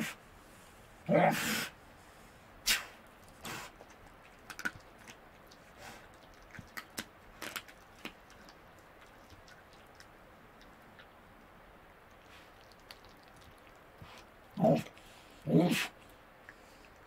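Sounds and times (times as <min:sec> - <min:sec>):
animal crunching on bone: 0:03.2 - 0:11.2, 0:12.1 - 0:15.1.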